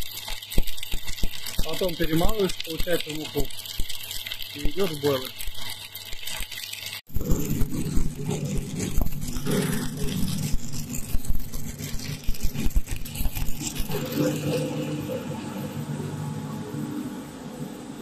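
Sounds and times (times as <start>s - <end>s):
machinery humming: 7.1s - 18.0s.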